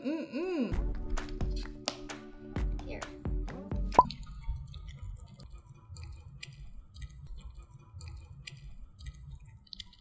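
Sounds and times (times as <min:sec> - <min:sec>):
cat chewing wet food: 0:04.1 - 0:10.0.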